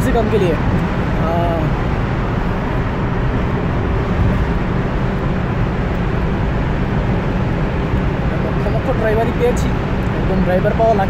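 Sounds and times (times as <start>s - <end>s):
car engine and tyre rumble: 0.0s - 11.0s.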